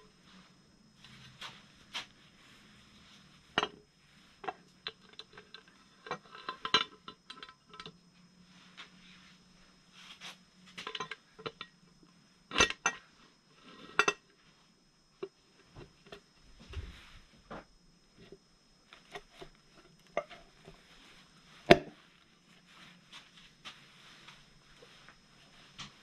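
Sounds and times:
metal cover clicking and knocking: 12.5s - 13.0s, 21.7s - 21.9s.

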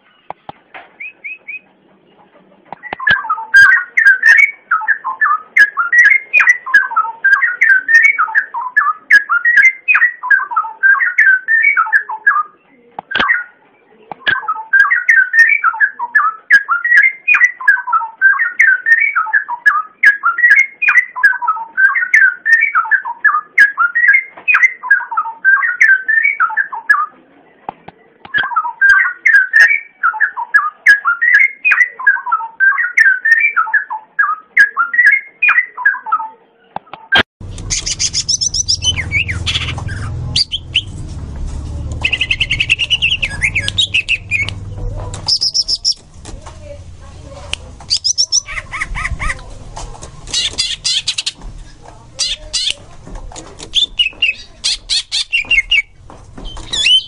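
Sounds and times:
high bird chirps and trills: 14.2s - 27.1s, 37.4s - 57.0s
bird warbling song: 37.4s - 41.0s, 41.9s - 57.0s
steady low hum: 37.4s - 54.6s.

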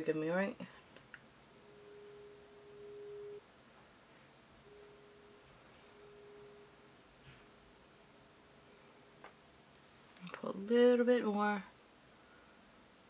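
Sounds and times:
faint mid-pitched whine: 0.0s - 13.0s.

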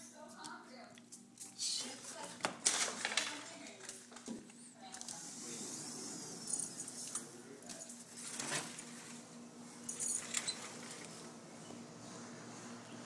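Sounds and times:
metal collar tags jingling: 9.8s - 10.7s.

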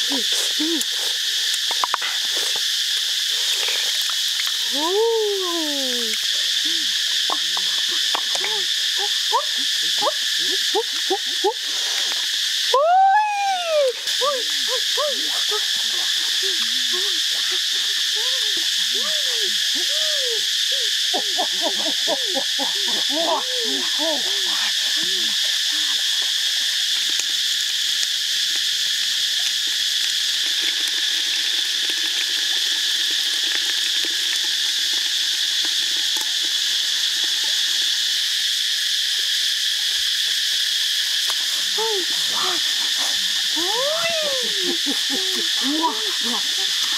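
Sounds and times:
high insect chorus: 0.0s - 46.9s
frog calls: 5.5s - 12.2s, 13.9s - 26.8s, 41.0s - 46.9s.

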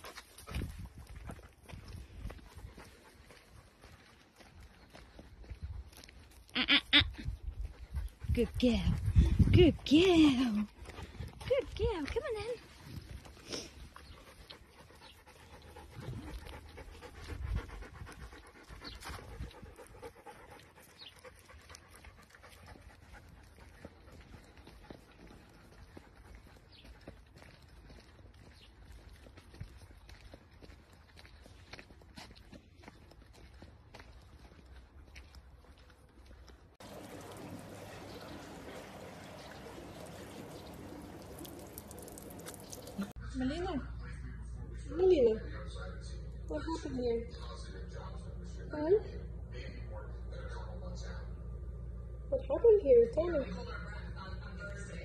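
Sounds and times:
footsteps scuffing on dirt path: 0.0s - 6.5s, 21.4s - 37.5s
dog panting: 2.2s - 4.5s, 7.4s - 11.8s, 12.4s - 27.8s
water pouring from watering can: 36.8s - 43.2s
water splashing on plants: 36.8s - 43.2s.

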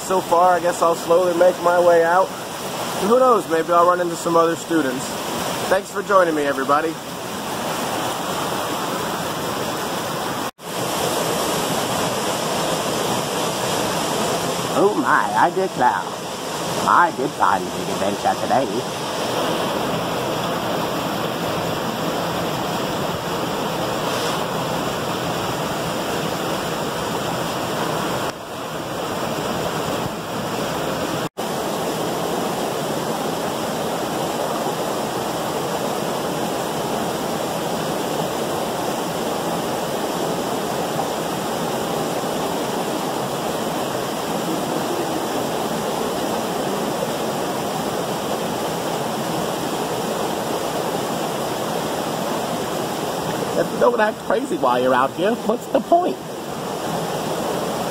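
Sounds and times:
waterfall and creek rushing: 0.0s - 57.9s.

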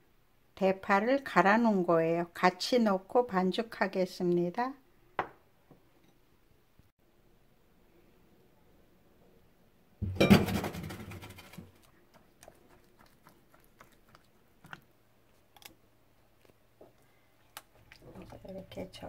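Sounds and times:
clattering and rustling burst: 10.2s - 11.7s.

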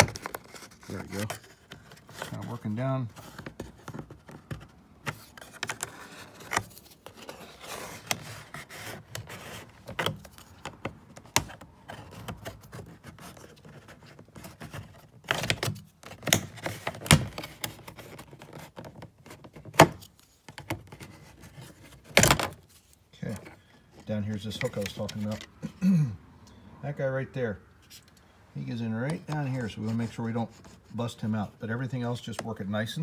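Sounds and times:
plastic trim scraping and rattling: 0.0s - 25.5s.

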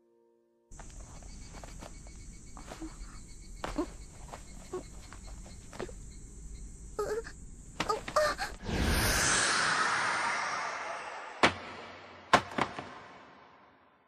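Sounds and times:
insect chirring: 0.7s - 8.7s.

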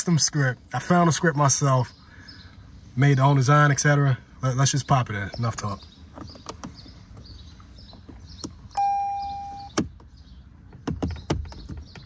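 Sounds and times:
car electronic beep: 8.7s - 9.9s.

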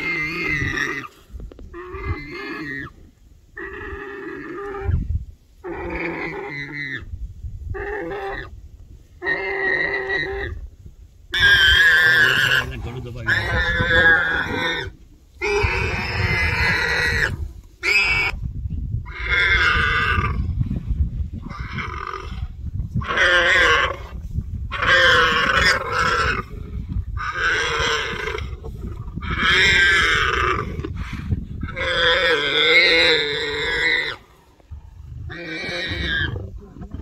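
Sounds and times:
warthog squealing: 11.4s - 18.4s, 23.0s - 24.1s, 24.7s - 31.0s, 31.6s - 34.3s, 35.2s - 37.0s
lions growling low: 24.8s - 37.0s.

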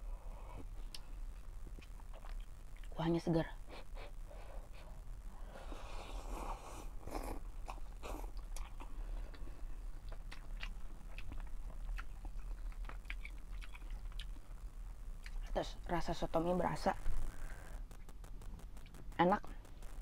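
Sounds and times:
chewing: 1.8s - 2.9s, 7.0s - 14.5s.

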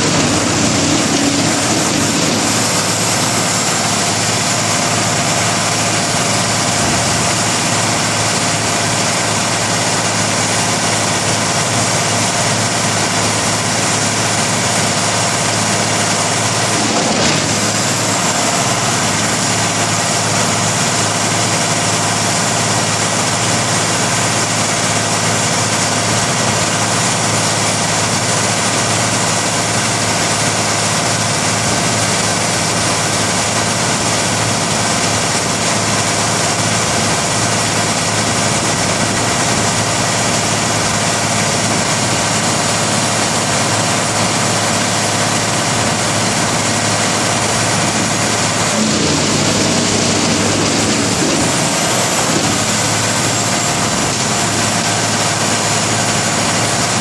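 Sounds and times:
chipper drum rushing: 0.0s - 10.3s, 13.3s - 22.2s, 45.7s - 57.0s
diesel engine drone: 0.0s - 57.0s.

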